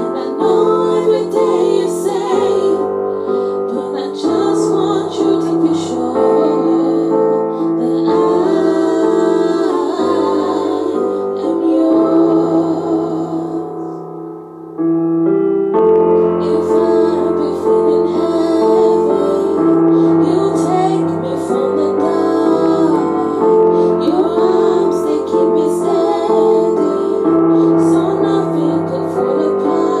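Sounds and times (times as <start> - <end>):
girls singing in harmony: 0.0 - 14.1, 16.2 - 30.0
piano accompaniment: 0.0 - 30.0.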